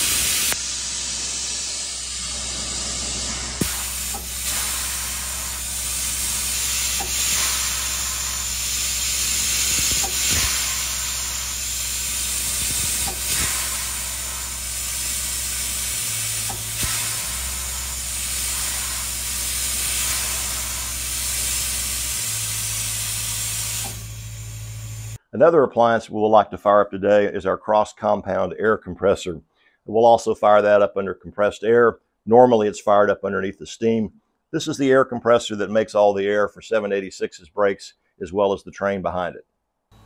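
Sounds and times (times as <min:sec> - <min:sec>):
compressed air hissing: 0:00.0 - 0:25.2.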